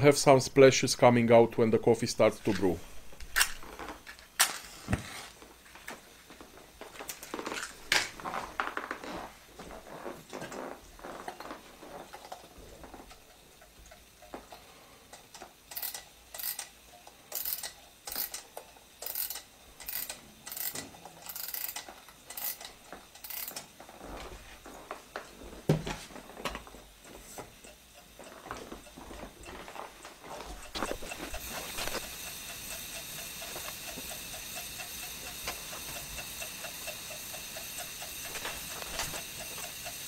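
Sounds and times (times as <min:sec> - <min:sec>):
alarm clock winding ratchet: 0:11.2 - 0:23.8, 0:26.9 - 0:40.0.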